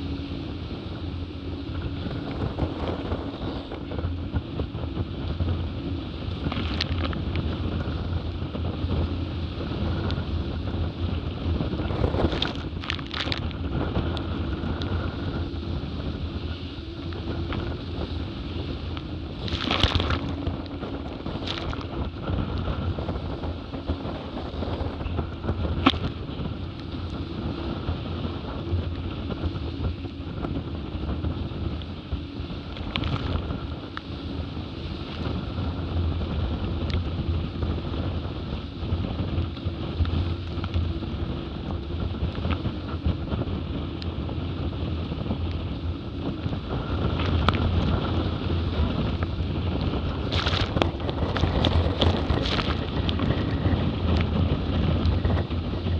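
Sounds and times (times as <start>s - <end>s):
water rushing past hulls: 0.0s - 55.9s
wind buffeting microphone: 0.0s - 55.9s.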